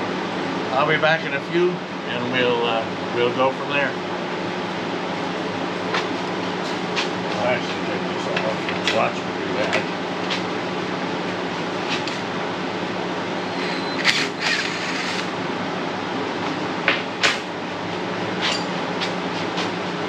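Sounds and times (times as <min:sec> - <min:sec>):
steady mechanical hum: 0:00.0 - 0:20.0.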